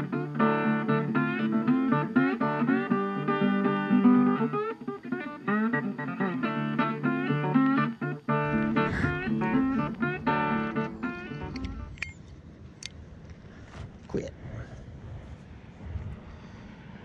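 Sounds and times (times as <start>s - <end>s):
plucked guitar music: 0.0s - 12.1s.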